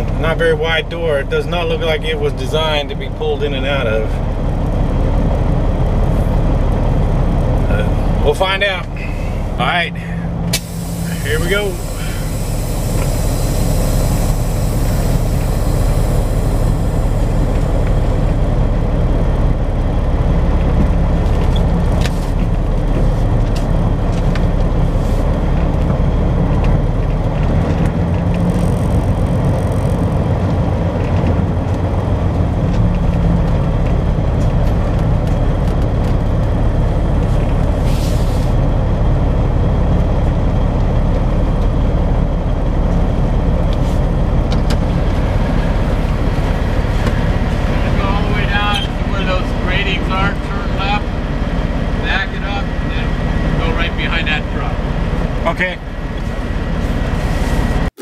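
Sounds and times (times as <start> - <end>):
truck diesel engine idling: 0.0 - 27.3, 28.4 - 58.0
air hiss: 10.5 - 18.3.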